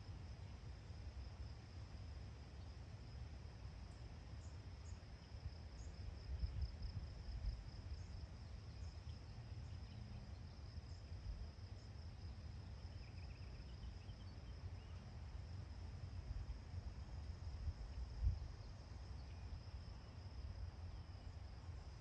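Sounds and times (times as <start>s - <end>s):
high-pitched insect trill: 4.4s - 15.6s
wind rumble on microphone: 5.3s - 8.4s, 16.0s - 22.0s.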